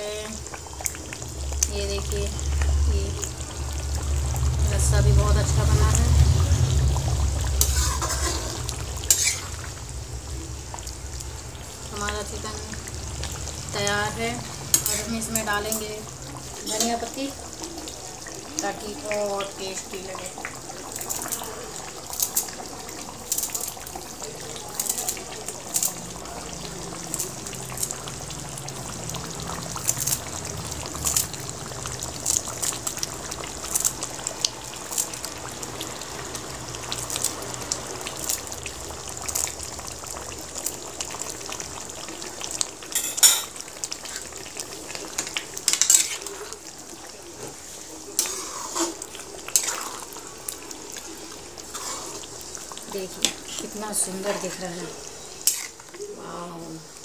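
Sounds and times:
curry bubbling and sizzling: 0.0 - 57.0
metal ladle clinking and scraping: 7.6 - 9.6, 45.2 - 46.3, 55.4 - 55.8.

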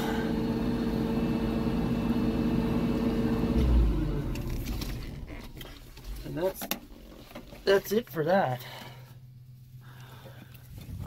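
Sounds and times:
machine hum with held tones: 0.0 - 6.1.

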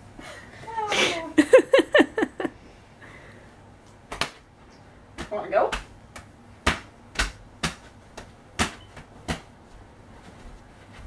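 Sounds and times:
hand claps and slaps: 4.1 - 4.4, 5.2 - 9.5.

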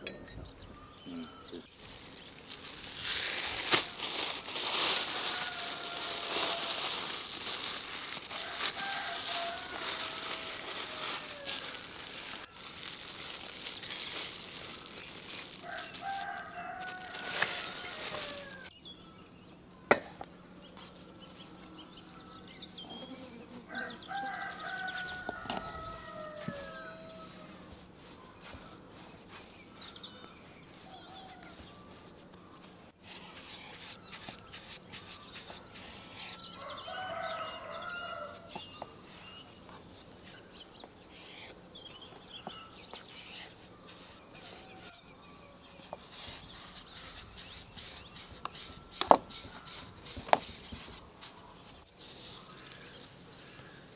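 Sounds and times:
small birds chirping: 0.0 - 53.9
rooster crowing: 5.1 - 6.9, 8.4 - 11.8, 15.6 - 18.7, 23.7 - 27.5, 36.5 - 38.5.

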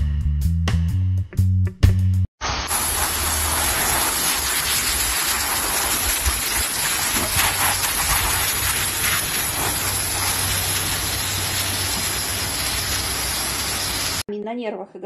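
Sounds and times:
hose spraying water: 2.4 - 14.3.

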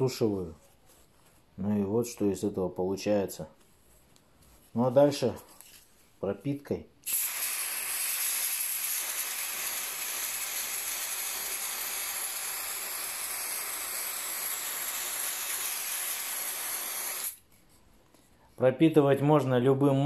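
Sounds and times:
aerosol can spraying hiss: 7.0 - 17.4.

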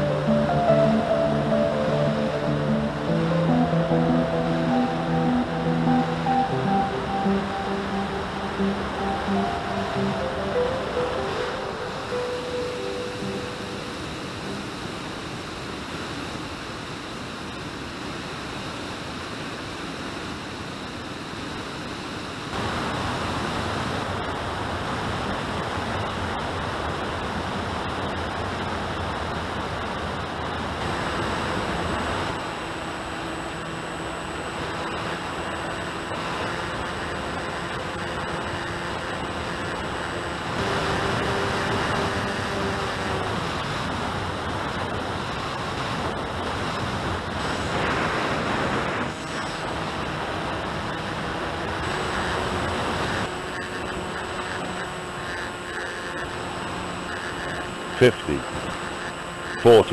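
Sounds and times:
faint motor hum: 0.0 - 59.9
airflow rushing over microphone: 43.0 - 51.5.

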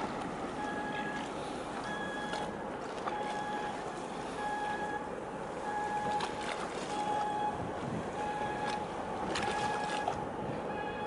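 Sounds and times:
water: 0.0 - 11.0
wind: 0.0 - 11.0
electronic warning beeps: 1.9 - 2.5.

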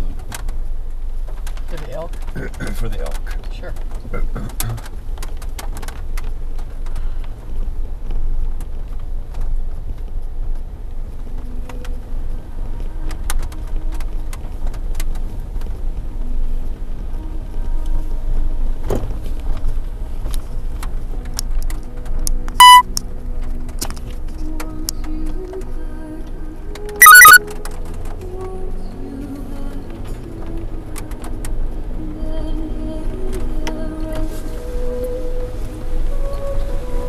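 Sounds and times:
vehicle rumble on dirt road: 0.0 - 37.0
loud electronic beep: 22.6 - 22.9, 27.0 - 27.4.

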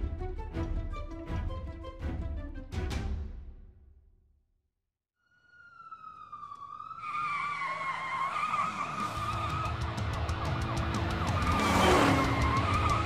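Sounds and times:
cartoon police siren: 5.2 - 13.0
loud engine rumble: 9.0 - 13.0.

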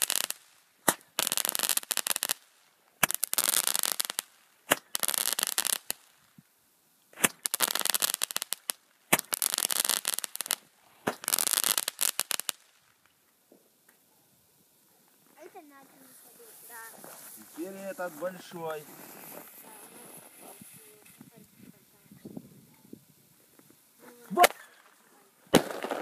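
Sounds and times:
firework pops: 0.0 - 2.4, 3.0 - 6.1, 7.1 - 14.0, 23.6 - 26.0
firework crackling: 0.0 - 6.4, 7.1 - 13.2, 15.2 - 26.0.

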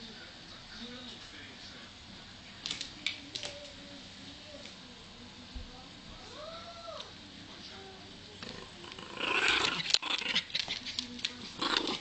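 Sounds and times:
dog growling: 8.4 - 10.7, 11.4 - 12.0.

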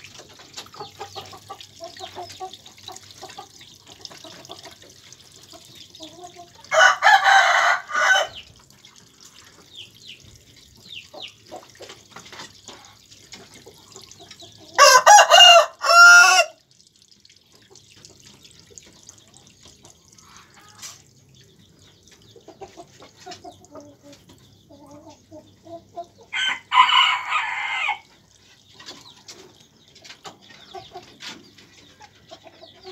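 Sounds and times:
rooster crowing: 6.7 - 8.4, 14.8 - 16.6, 26.3 - 28.1.

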